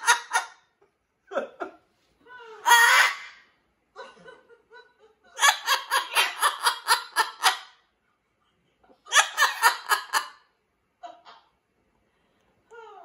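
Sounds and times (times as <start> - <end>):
macaw imitating laughter: 9.1 - 10.4.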